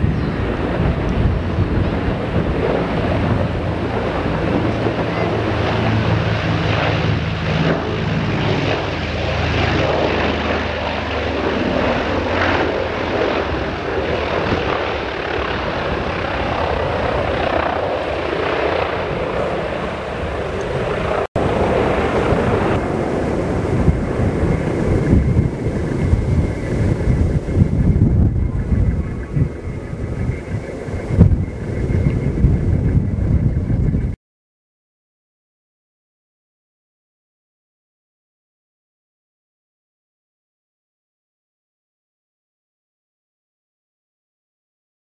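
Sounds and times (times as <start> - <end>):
propeller airliner engines droning: 0.0 - 34.2.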